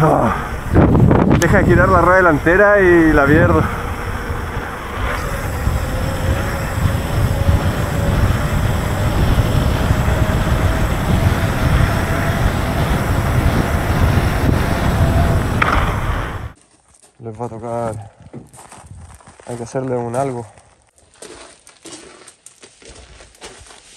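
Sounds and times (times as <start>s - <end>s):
faint rising hum: 0.0s - 16.6s
wind buffeting microphone: 0.0s - 16.6s, 18.0s - 19.4s
bike tyres rolling on wet asphalt: 1.4s - 16.6s.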